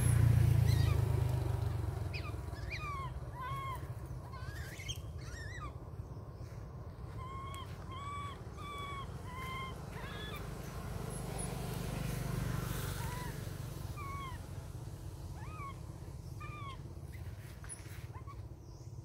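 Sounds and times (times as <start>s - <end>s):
young monkey calling: 0.6s - 1.2s, 2.0s - 6.0s, 7.1s - 10.6s, 12.9s - 14.5s, 15.2s - 17.2s, 18.0s - 18.8s.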